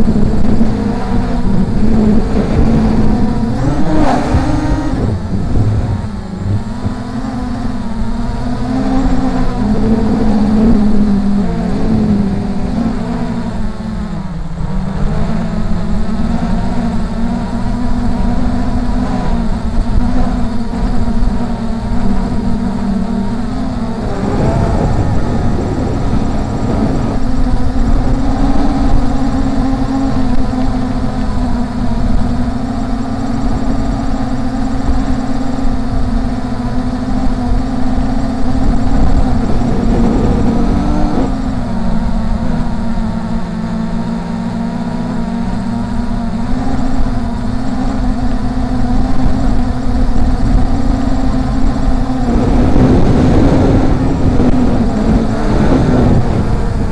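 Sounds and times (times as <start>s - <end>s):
drone propellers humming: 0.0s - 56.9s
wind rumble on microphone: 0.0s - 56.9s.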